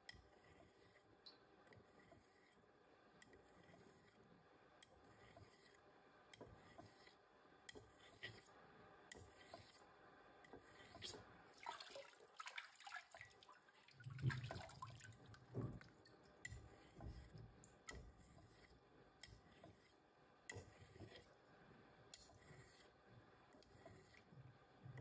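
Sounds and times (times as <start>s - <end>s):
razor sliding on whetstone: 0.0s - 11.3s, 16.4s - 21.5s, 22.1s - 24.4s
water dripping: 11.6s - 16.3s.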